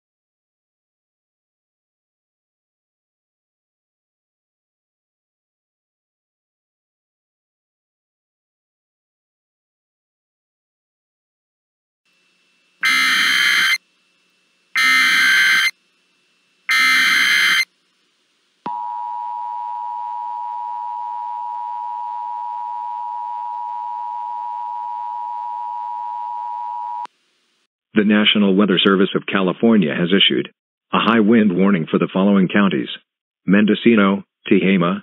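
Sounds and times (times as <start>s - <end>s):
digital data bursts: 12.8s - 13.8s, 14.8s - 15.8s, 16.7s - 17.7s
two-tone attention signal: 12.8s - 13.8s, 14.8s - 15.7s, 16.7s - 17.7s, 18.7s - 27.1s.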